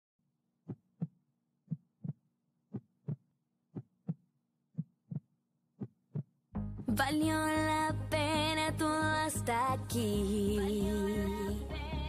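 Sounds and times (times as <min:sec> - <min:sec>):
heartbeat thumps: 0:01.7 - 0:03.2.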